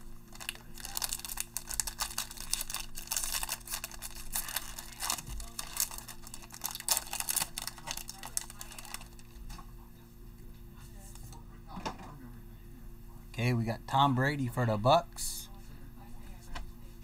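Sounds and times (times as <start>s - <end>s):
foil wrapper tearing and crinkling: 0.3s - 9.3s.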